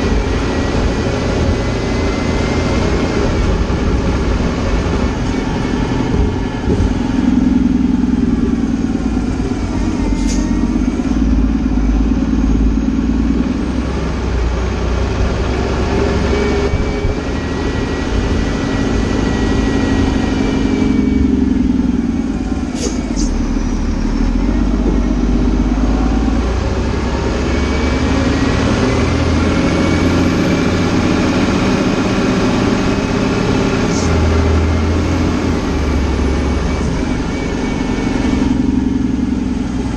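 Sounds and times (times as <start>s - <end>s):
truck diesel engine: 0.0s - 39.9s.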